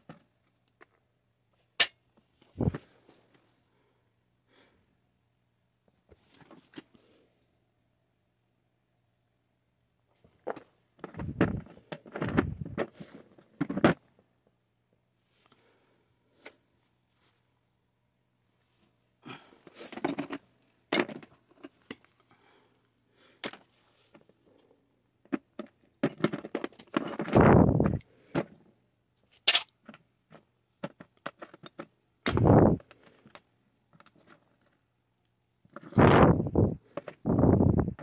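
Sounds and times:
metal parts clinking and scraping: 29.4 - 29.7.

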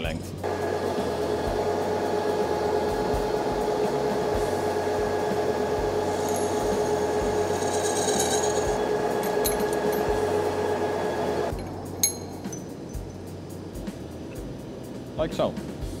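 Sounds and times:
metal lathe humming: 0.4 - 13.0.

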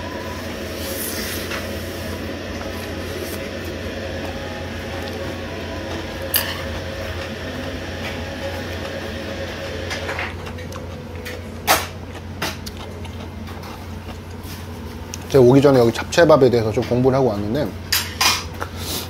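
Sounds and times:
machine hum: 0.0 - 19.0.

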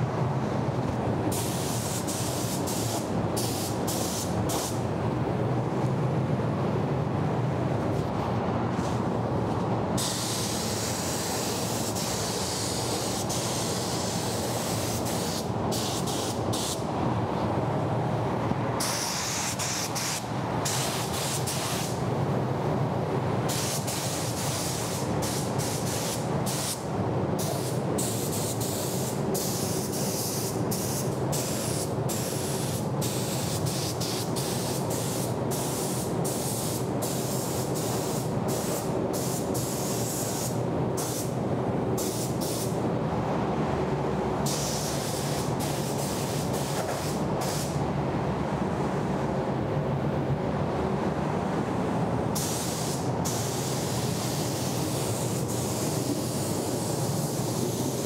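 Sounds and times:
air flow rumble: 0.0 - 58.0
paint spray gun hissing: 1.3 - 4.8, 10.0 - 16.8, 23.5 - 26.8, 27.4 - 41.3, 42.0 - 42.7, 44.5 - 47.8, 52.4 - 58.0.

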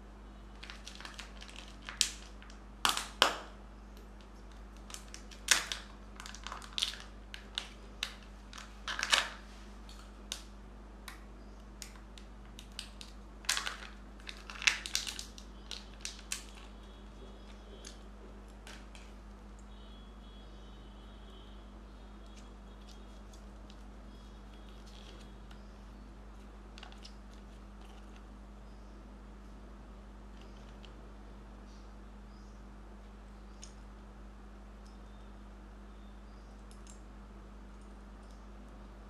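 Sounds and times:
plastic and foil crinkling: 0.6 - 3.3, 4.2 - 10.5, 11.8 - 19.2, 22.2 - 25.6, 26.4 - 28.3.

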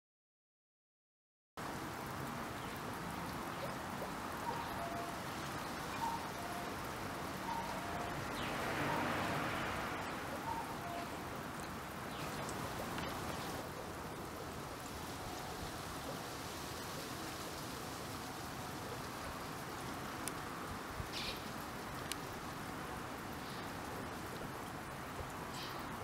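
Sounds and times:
water hiss: 1.6 - 26.0
cuckoo calling: 3.5 - 9.2, 10.0 - 16.3, 21.1 - 21.6.

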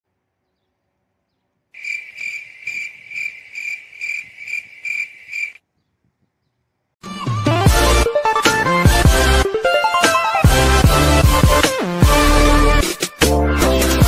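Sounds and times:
cricket-like chirping: 1.8 - 5.6.

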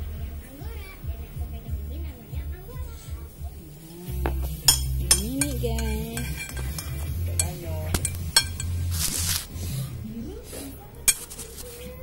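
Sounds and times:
metal spoon clinking on ceramic plate: 4.4 - 9.1, 11.1 - 11.4.

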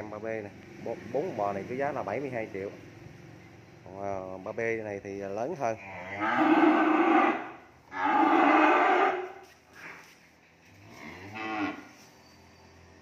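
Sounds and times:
cattle mooing: 5.8 - 9.4, 10.8 - 12.0.

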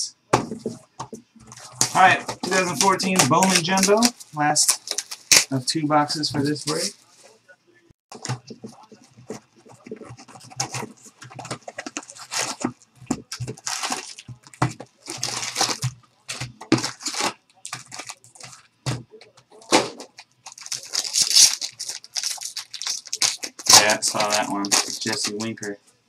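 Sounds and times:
foil wrappers tearing and crinkling: 1.6 - 7.0, 10.1 - 18.7, 19.6 - 25.8.

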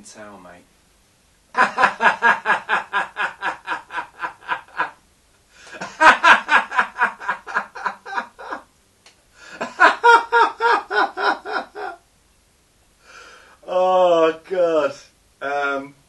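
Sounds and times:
man laughing hard: 1.6 - 5.0, 5.7 - 8.6, 9.5 - 12.0.

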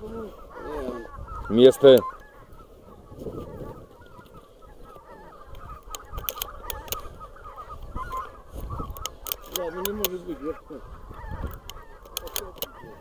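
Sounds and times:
geese honking: 0.0 - 13.0
sharp clicks: 5.5 - 7.1, 8.9 - 10.2, 11.2 - 12.8.

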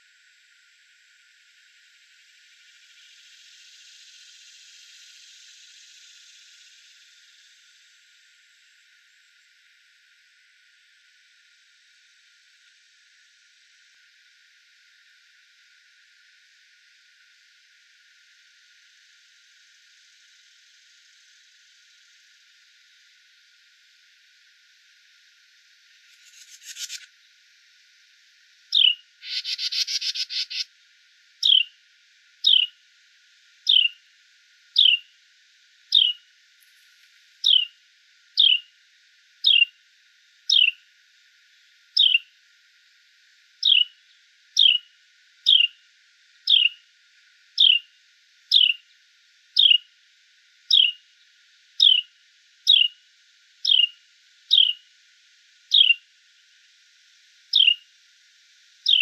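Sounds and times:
animal chip call: 29.2 - 30.6.

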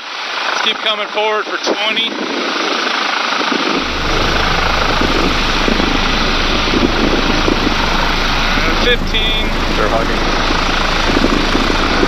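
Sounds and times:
helicopter rotor and turbine: 2.2 - 12.0
deep rumble: 3.8 - 12.0.

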